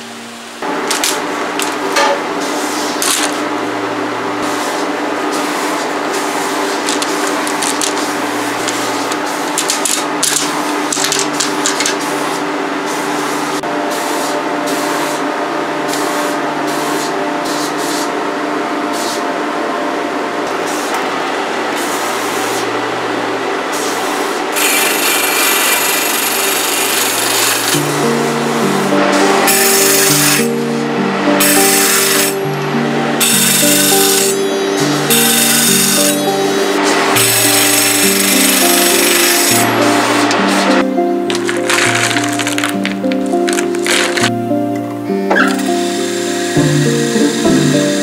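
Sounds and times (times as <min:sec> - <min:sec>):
newspaper crinkling: 0:09.6 - 0:12.0, 0:41.3 - 0:44.3
table saw motor running: 0:20.5 - 0:44.3, 0:45.3 - 0:48.0
saw blade cutting acrylic: 0:24.6 - 0:27.9, 0:29.5 - 0:30.5, 0:33.2 - 0:34.5, 0:35.1 - 0:36.3, 0:37.2 - 0:39.7.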